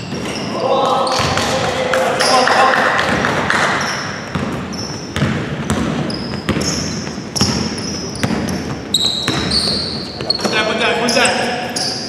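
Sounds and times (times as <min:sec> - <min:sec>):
sneakers squeaking: 0:00.0 - 0:12.0
basketball dribbling on wooden floor: 0:03.0 - 0:10.6.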